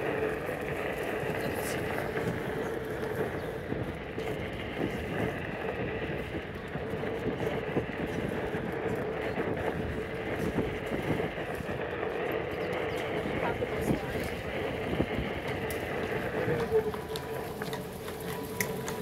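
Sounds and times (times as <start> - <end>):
footsteps on paved path: 0.0 - 19.0
steady background hum: 0.0 - 19.0.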